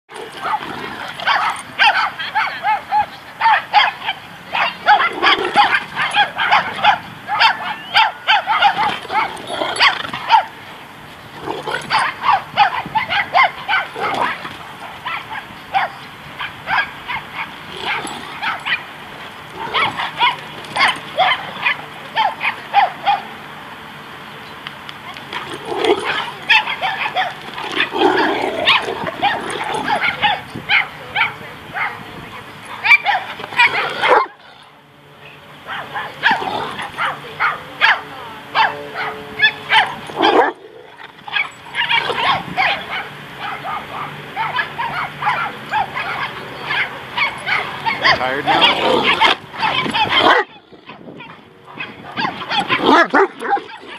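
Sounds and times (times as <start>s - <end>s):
dogs play barking: 0.1s - 23.5s, 24.8s - 53.9s
deep dog bark: 0.4s - 10.5s, 32.7s - 34.4s, 41.3s - 51.0s, 51.8s - 53.9s.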